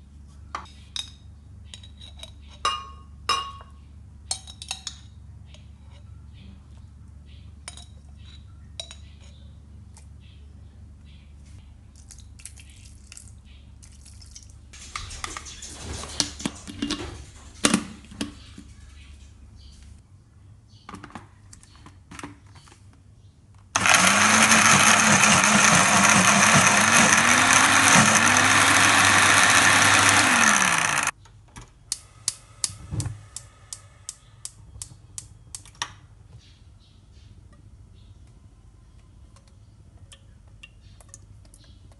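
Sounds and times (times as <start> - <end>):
blender running: 23.8 - 31.1.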